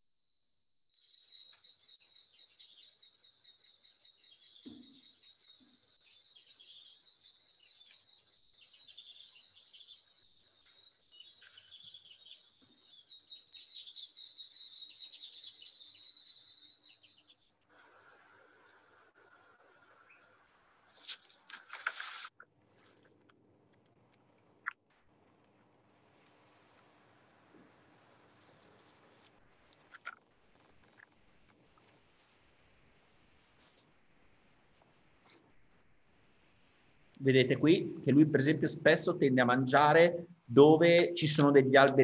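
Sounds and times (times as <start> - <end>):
insects chirping: 0.0 - 21.1.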